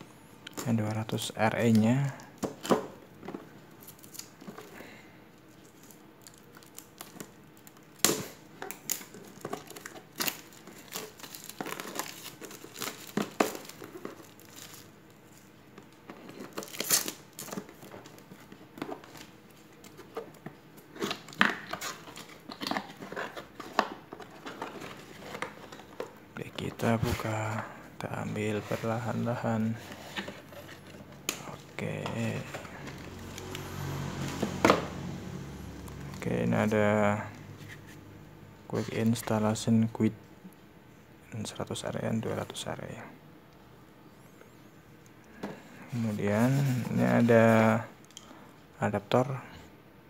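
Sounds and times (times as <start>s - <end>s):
plastic wrap crinkling: 5.4s - 27.6s.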